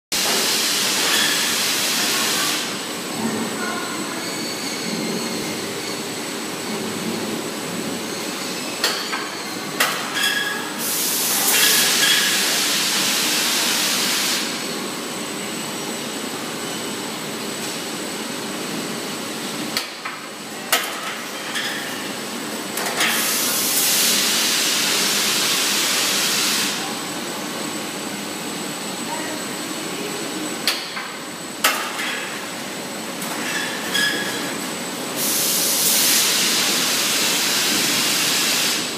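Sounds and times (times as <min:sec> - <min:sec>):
long machine hiss: 0:35.1 - 0:38.9.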